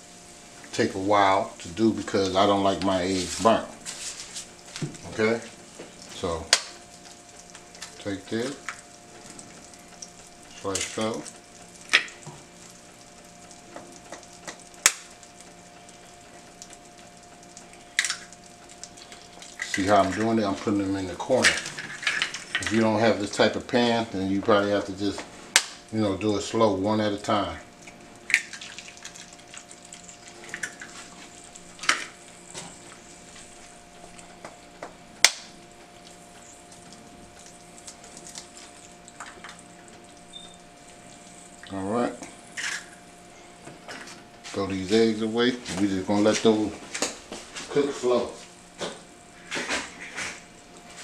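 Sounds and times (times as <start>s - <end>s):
oil sizzling in pan: 0.0s - 43.3s, 43.9s - 51.0s
faint steady hum: 0.0s - 51.0s
eggs cracked against pan rim: 13.8s - 15.2s, 17.7s - 20.2s, 25.5s - 25.8s, 27.8s - 31.0s, 34.4s - 39.9s
eggshells cracked against pan rim: 17.9s - 18.3s.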